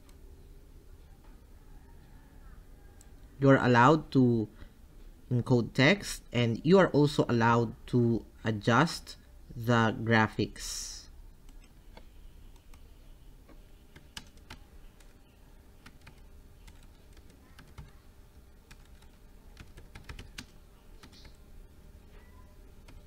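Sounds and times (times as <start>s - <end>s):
faint keyboard typing: 11.4s - 21.4s, 22.1s - 23.0s.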